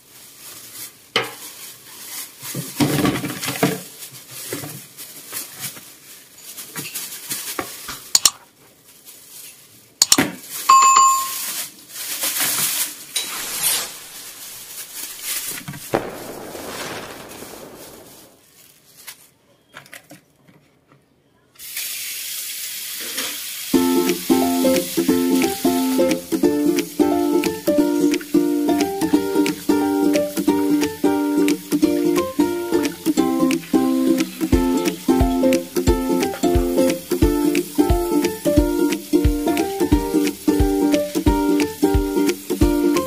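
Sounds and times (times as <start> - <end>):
plastic bag rustling: 0.0 - 19.4
bell-like ding: 10.7 - 11.5.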